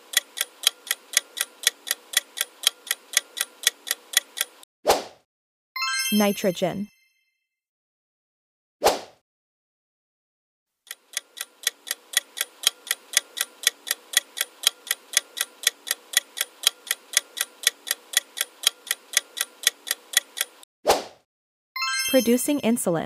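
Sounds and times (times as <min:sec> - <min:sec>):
clock ticking: 0:00.0 - 0:04.6, 0:10.9 - 0:20.7.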